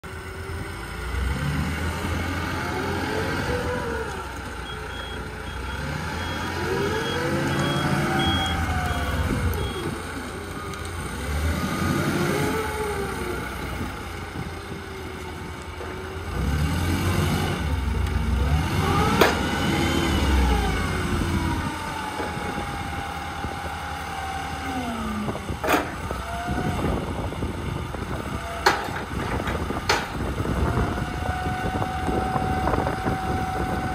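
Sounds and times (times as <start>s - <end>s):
forklift engine revving: 0.0s - 33.9s.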